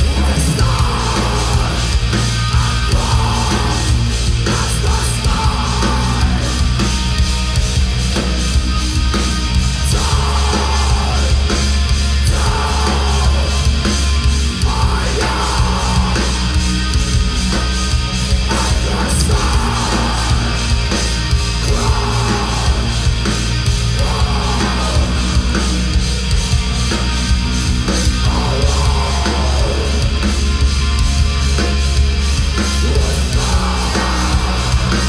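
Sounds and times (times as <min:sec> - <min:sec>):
metal band playing live: 0:00.0 - 0:35.0.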